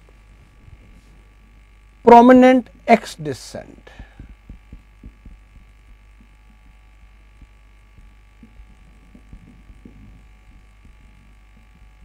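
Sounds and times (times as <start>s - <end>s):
electrical hum: 0.0s - 12.0s
marker writing on whiteboard: 3.9s - 12.0s.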